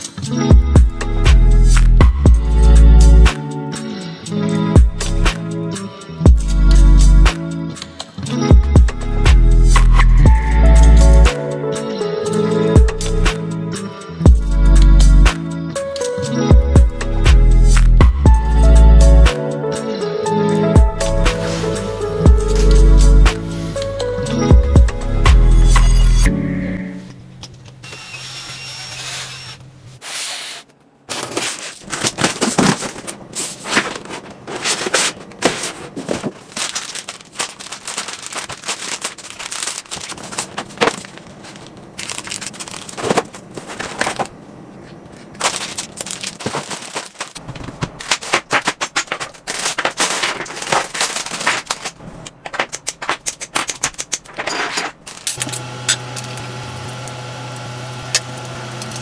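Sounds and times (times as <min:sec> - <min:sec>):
plastic packaging crackling: 0:31.1 - 0:59.0.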